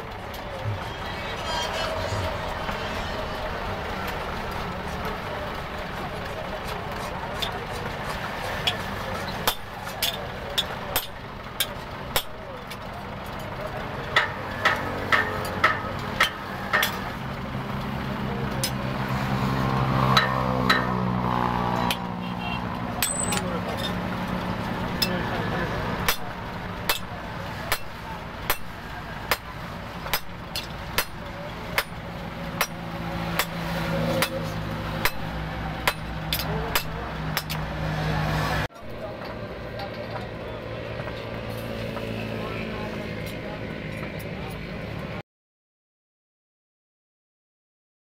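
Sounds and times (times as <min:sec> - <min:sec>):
low hum of vehicle engine: 0:00.0 - 0:45.2
hammer striking metal on anvil: 0:14.2 - 0:17.0, 0:20.1 - 0:21.0, 0:23.0 - 0:24.0, 0:26.0 - 0:27.1, 0:27.7 - 0:31.2, 0:31.8 - 0:32.0, 0:32.6 - 0:33.6, 0:34.2 - 0:37.7.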